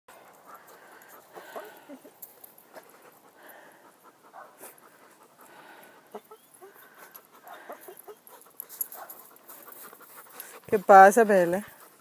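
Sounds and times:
dog panting: 0:00.1 - 0:12.0.

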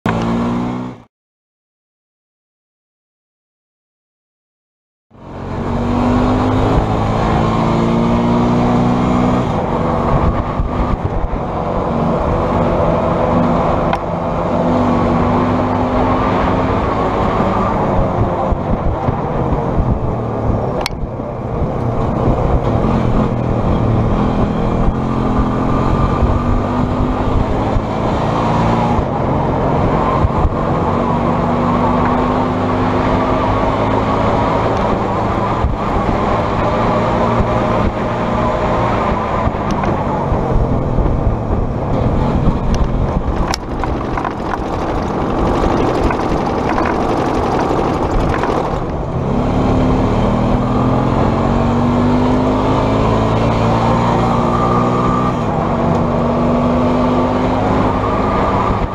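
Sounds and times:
rushing noise: 0:42.0 - 0:49.8
trike engine running: 0:42.4 - 0:49.9.

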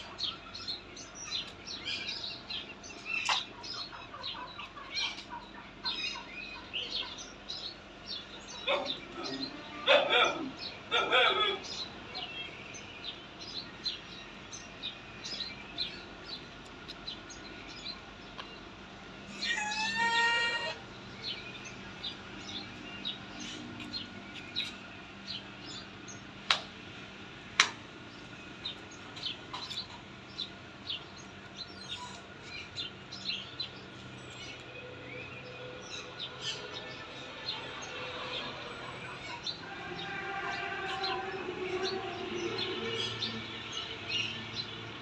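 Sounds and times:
geese calling: 0:19.3 - 0:25.0, 0:37.6 - 0:44.3.

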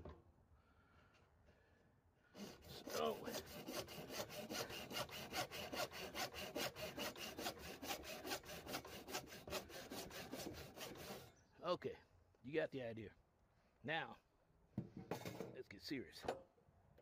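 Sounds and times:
hand saw cutting plastic pipe: 0:02.4 - 0:11.3.

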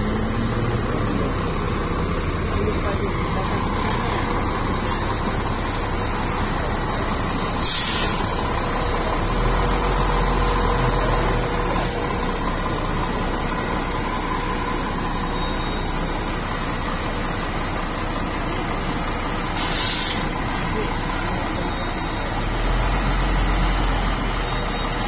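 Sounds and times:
heavy diesel engine running: 0:00.0 - 0:25.0
air brake hiss: 0:04.8 - 0:05.2, 0:07.6 - 0:08.3, 0:19.6 - 0:20.4.

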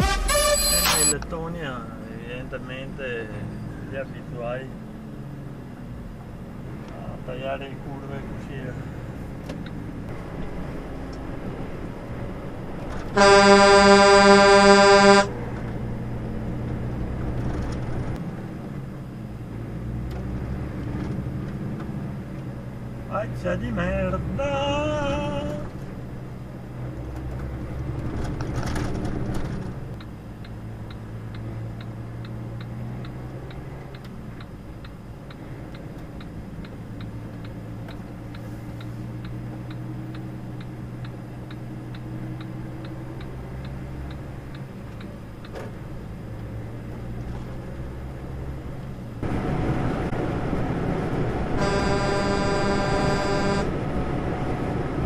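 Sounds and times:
horn sounding: 0:00.0 - 0:01.2, 0:13.1 - 0:15.4, 0:51.6 - 0:53.8
road noise: 0:00.0 - 0:55.0
truck engine drone: 0:00.0 - 0:55.0
turn signal ticking: 0:29.9 - 0:49.2.

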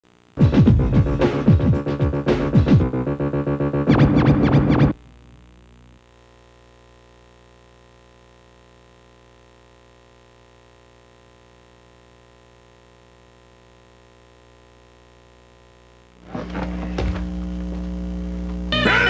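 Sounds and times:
faint steady hum: 0:04.9 - 0:19.0.

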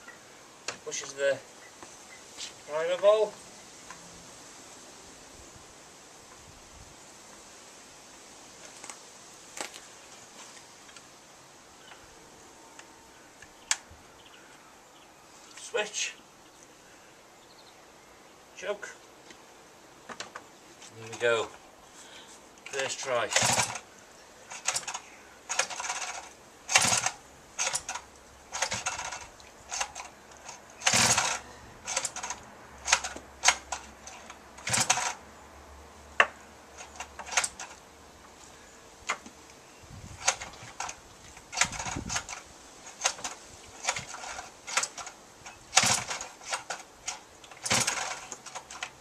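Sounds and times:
recoil starter cord pulls: 0:22.7 - 0:23.9, 0:24.5 - 0:35.2, 0:36.8 - 0:37.8, 0:40.2 - 0:49.0.

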